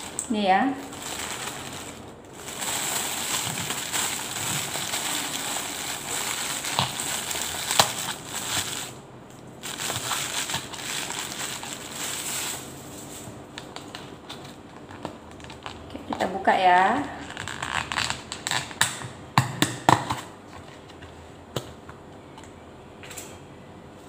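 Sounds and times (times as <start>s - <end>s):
plastic bag rustling: 0.0s - 9.0s, 9.6s - 13.4s.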